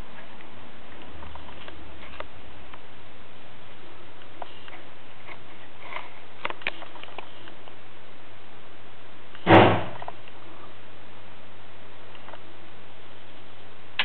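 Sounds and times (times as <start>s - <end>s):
faint clicks and rustles: 0.0s - 2.9s, 3.6s - 7.9s, 12.0s - 12.5s
steady hiss: 0.0s - 14.0s
heavy knock: 9.5s - 10.0s.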